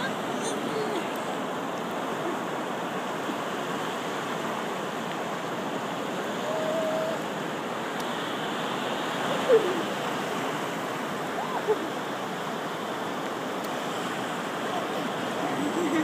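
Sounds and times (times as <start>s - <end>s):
small waves breaking: 0.0s - 16.0s.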